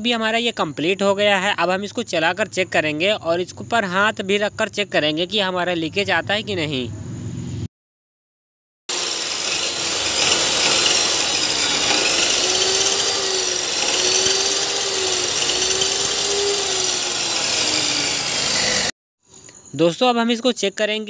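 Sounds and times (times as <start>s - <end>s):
chop saw whirring: 8.9s - 18.9s.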